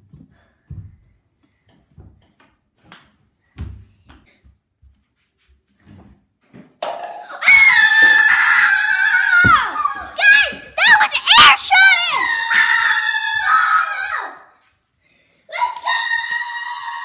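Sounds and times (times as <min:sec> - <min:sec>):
child yelling: 0:09.2 - 0:14.5.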